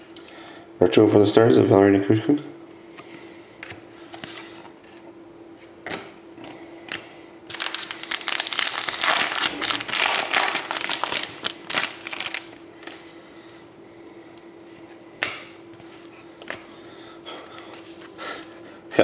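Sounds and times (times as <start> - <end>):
faint steady hum: 0.0 - 19.0
card packaging clicks and rustles: 6.9 - 13.1
packaging crinkling: 7.5 - 13.1.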